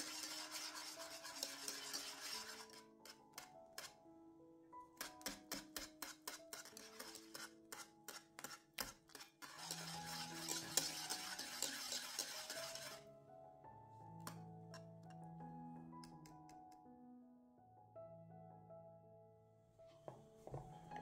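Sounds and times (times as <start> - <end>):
background music: 0.0 - 21.0
utensil clicking against pot: 5.0 - 9.8.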